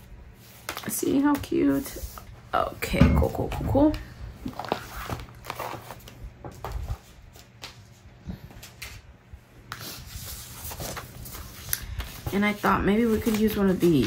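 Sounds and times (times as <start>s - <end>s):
paper rustling on table: 4.4s - 9.1s, 9.7s - 14.0s.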